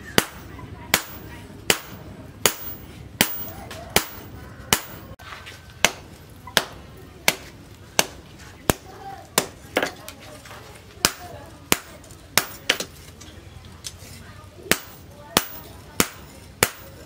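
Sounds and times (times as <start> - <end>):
hammer striking hot steel on anvil: 0.0 - 5.2, 11.0 - 12.9, 14.7 - 17.0.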